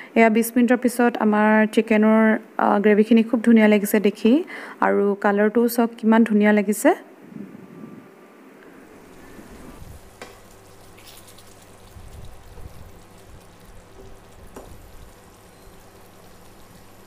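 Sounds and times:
curry sizzling and simmering: 0:08.7 - 0:17.0
wooden spatula stirring: 0:09.0 - 0:17.0
spatula tapping a pan: 0:14.0 - 0:14.8.

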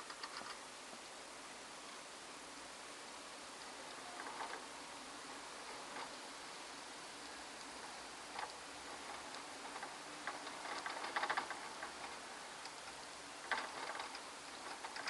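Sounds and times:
mice clicking in cage: 0:00.0 - 0:00.6, 0:07.2 - 0:15.0
faint steady hiss: 0:00.0 - 0:15.0.

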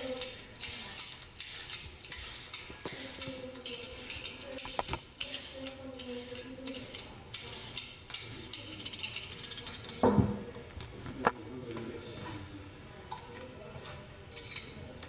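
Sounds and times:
peeler scraping carrot: 0:00.0 - 0:10.0.

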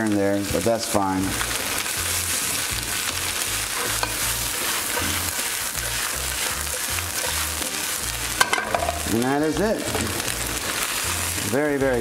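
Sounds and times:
spinach sizzling in oil: 0:00.0 - 0:12.0
metal tongs clicking on pan: 0:03.8 - 0:04.2, 0:08.4 - 0:09.1.

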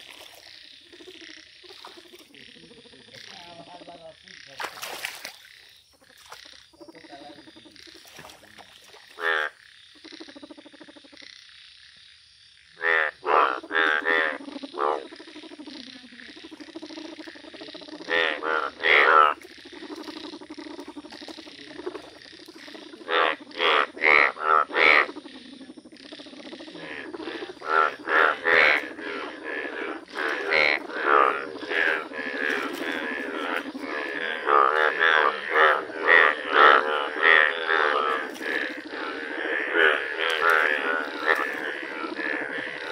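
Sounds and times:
bullfrogs croaking: 0:00.0 - 0:42.9
chorus of frogs calling: 0:00.0 - 0:42.9.

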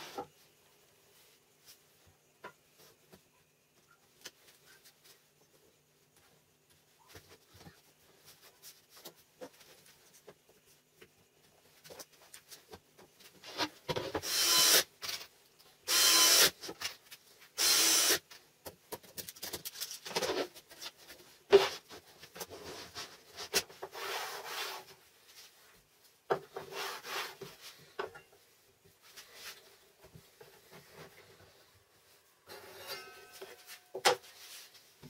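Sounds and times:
wood scraping against wood: 0:21.5 - 0:25.0, 0:26.3 - 0:28.0.

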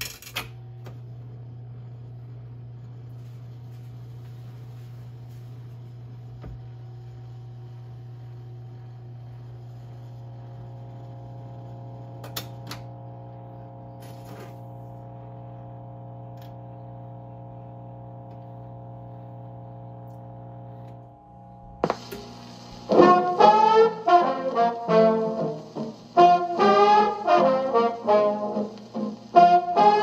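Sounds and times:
jukebox mechanism humming: 0:10.1 - 0:30.0.

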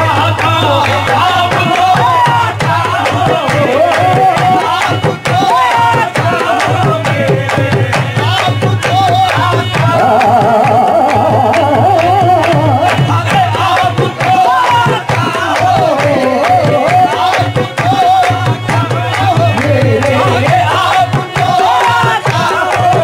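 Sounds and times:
hand drum beat: 0:00.0 - 0:23.0
person singing ornamented melody: 0:09.8 - 0:13.0.

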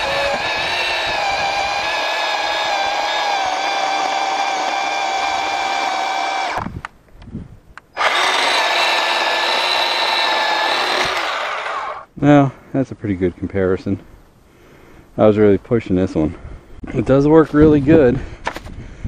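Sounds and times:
electric chainsaw cutting log: 0:00.0 - 0:06.7, 0:08.0 - 0:12.1.

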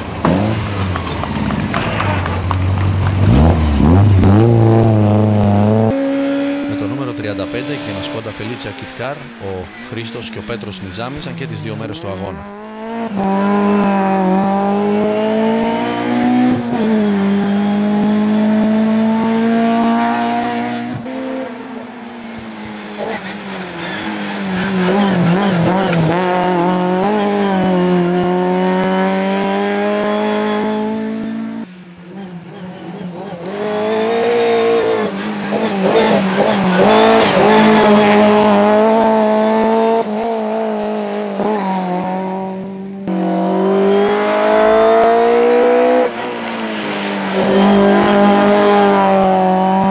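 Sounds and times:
rally car engine at high revs: 0:00.0 - 0:49.9
tyre squeal: 0:22.3 - 0:26.2.

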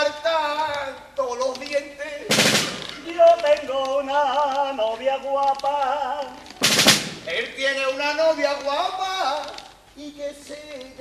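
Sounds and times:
snare drum roll: 0:02.3 - 0:03.0, 0:06.6 - 0:07.4.

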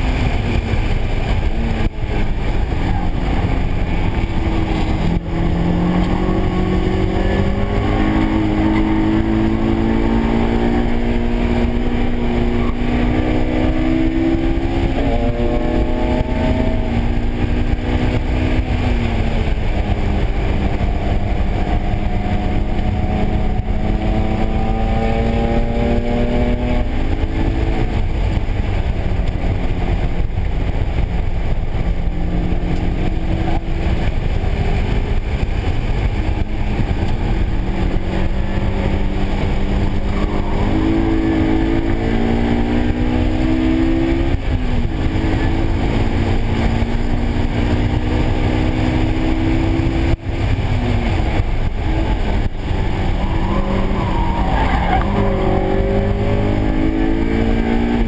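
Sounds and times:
car engine revving: 0:00.0 - 0:58.0
wind and tyre noise: 0:00.0 - 0:58.0.

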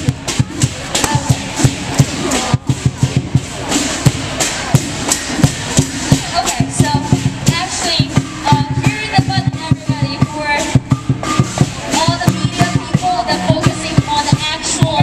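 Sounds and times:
crowd voices: 0:00.0 - 0:15.0
cymbals clashing: 0:00.0 - 0:15.0
drum beating fast rhythm: 0:00.0 - 0:15.0.

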